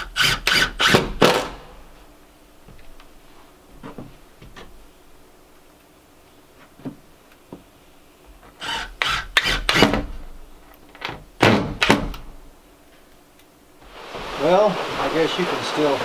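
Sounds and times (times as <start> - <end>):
cordless drill driving screws: 0.0 - 1.0, 8.6 - 9.9.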